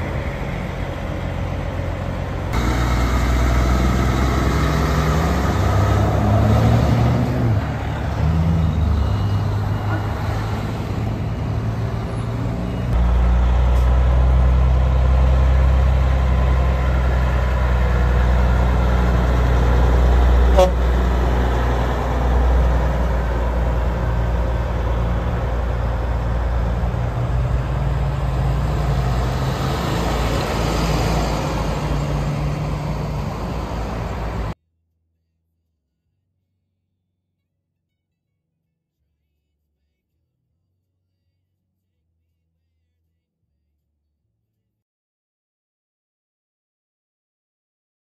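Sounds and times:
diesel truck engine rumble: 0.0s - 34.6s.

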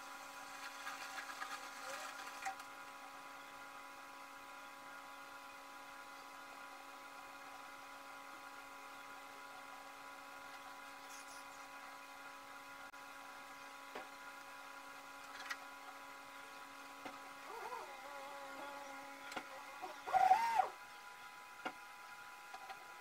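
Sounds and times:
small motor whirring: 0.5s - 2.7s, 17.4s - 20.8s.

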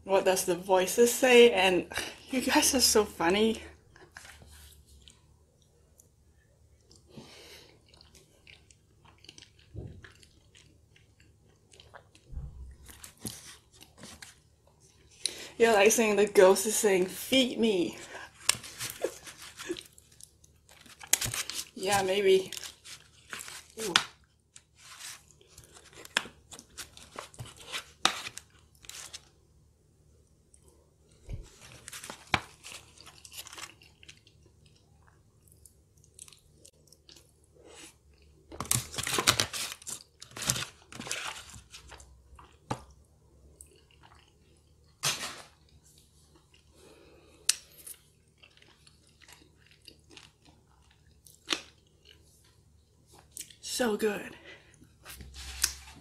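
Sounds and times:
chewing food: 4.0s - 15.4s, 30.4s - 38.7s, 40.8s - 45.0s, 45.6s - 53.6s.

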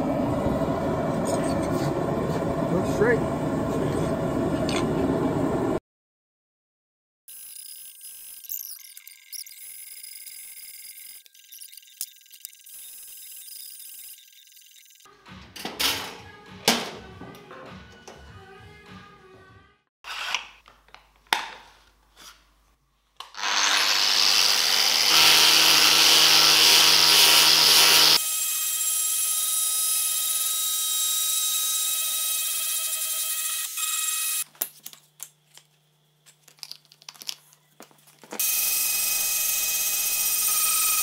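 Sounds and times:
angle grinder grinding steel: 23.3s - 34.4s.

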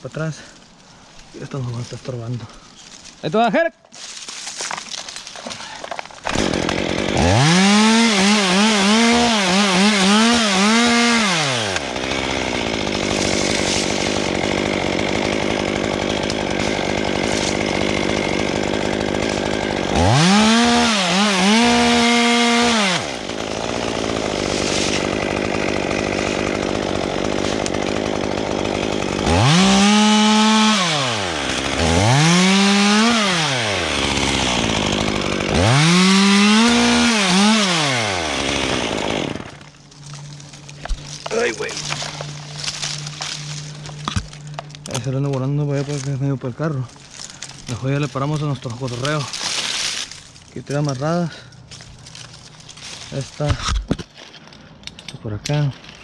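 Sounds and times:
chainsaw revving and idling: 5.9s - 53.6s.

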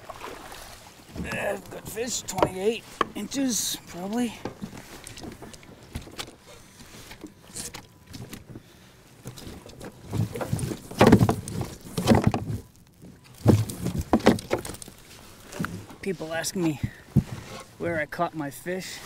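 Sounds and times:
knocks and thumps against hull: 0.0s - 16.0s, 16.6s - 17.8s
clicks and rustling: 9.2s - 16.0s.

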